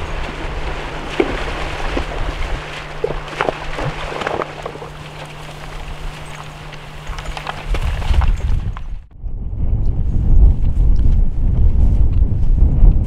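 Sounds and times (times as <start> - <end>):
shallow river rushing: 0.0 - 8.9
splashes of wading through water: 0.0 - 8.9.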